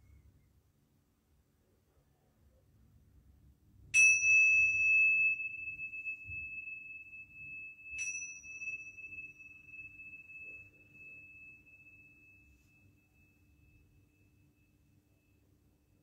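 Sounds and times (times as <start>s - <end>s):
small cymbals clashing and ringing: 4.0s - 14.9s.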